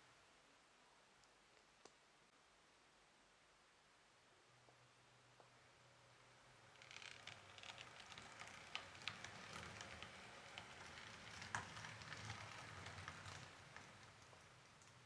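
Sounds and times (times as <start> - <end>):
model train motor hum: 6.7 - 14.4
model train wheels clicking: 6.8 - 15.0.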